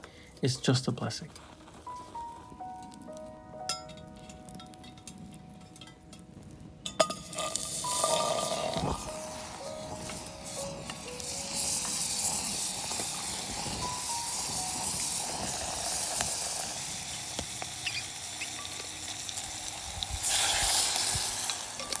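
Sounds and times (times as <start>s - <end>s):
garlic sizzling in a pot: 0.0s - 22.0s.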